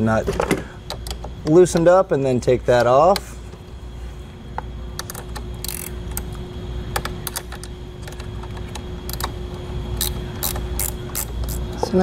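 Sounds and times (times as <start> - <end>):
ratchet wrench clicking: 5.0 - 6.3, 9.0 - 9.3, 9.9 - 11.6.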